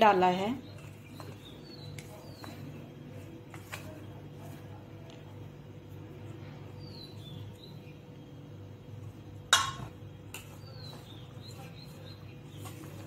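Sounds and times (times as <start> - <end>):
hand rubbing flour mix in bowl: 0.0 - 13.0
steady low hum: 0.0 - 13.0
clink against steel bowl: 9.5 - 9.9.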